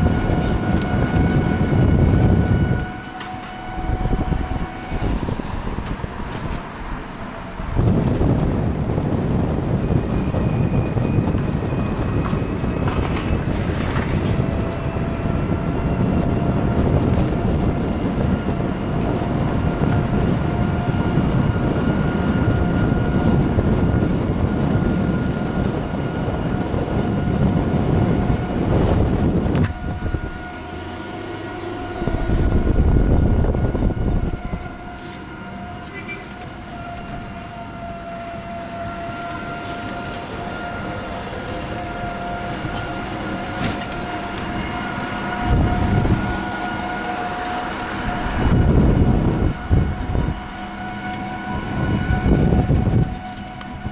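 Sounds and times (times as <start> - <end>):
road noise: 0.0 - 53.9
wind rumbling on microphone: 0.0 - 53.9.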